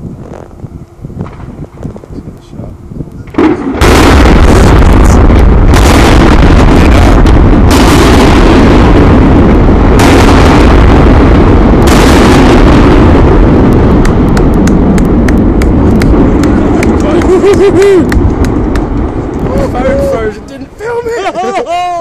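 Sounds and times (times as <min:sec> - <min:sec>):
explosive demolition rumble: 0:00.0 - 0:21.0
sharp blast cracks: 0:03.3 - 0:19.9.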